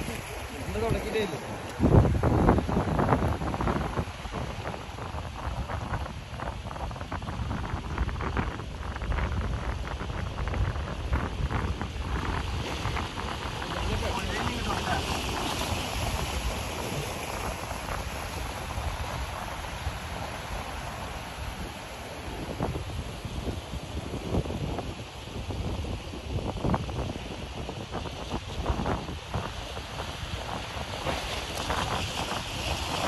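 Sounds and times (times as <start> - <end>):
sea waves washing over rocks: 0.0 - 33.0
wind buffeting microphone: 0.0 - 33.0
sea water splashing on rocks: 12.0 - 21.7.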